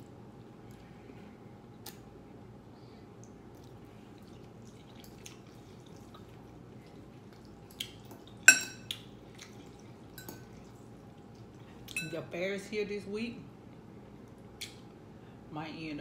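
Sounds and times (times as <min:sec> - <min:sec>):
fork clinking on glass: 0:08.5 - 0:08.9, 0:11.9 - 0:12.2.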